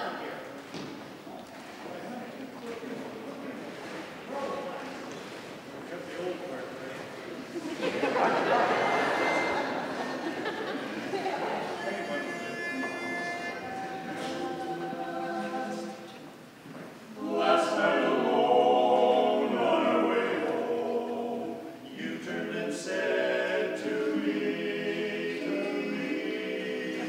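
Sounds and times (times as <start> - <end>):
male quartet singing a cappella: 8.4 - 16.3, 17.1 - 27.0.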